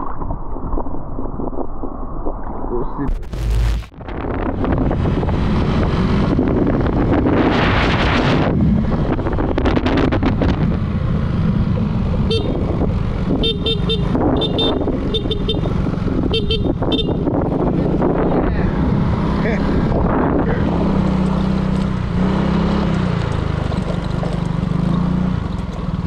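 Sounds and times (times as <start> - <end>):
wind rushing over microphone: 0.0 - 23.8
scooter engine and road noise: 3.1 - 26.0
scooter horn beeping: 12.2 - 12.6, 13.4 - 17.3.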